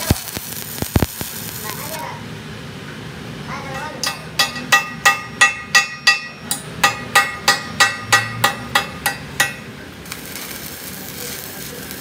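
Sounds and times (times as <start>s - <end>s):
steady hiss: 0.0s - 2.2s, 9.0s - 12.0s
hammer striking hot steel: 3.8s - 12.0s.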